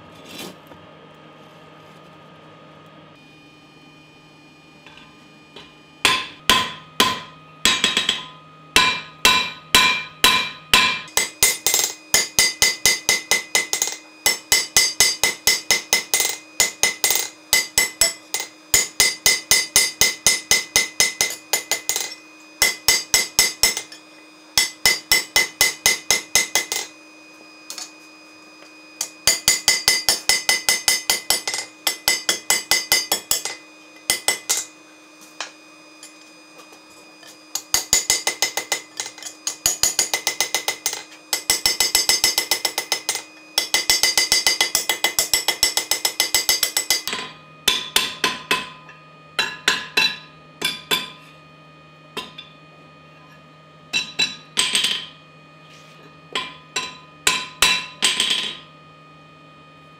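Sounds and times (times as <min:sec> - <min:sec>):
hammer striking steel on anvil: 0:04.9 - 0:27.0, 0:27.6 - 0:28.0, 0:29.0 - 0:51.2, 0:52.2 - 0:52.6, 0:53.9 - 0:55.2, 0:56.3 - 0:58.7.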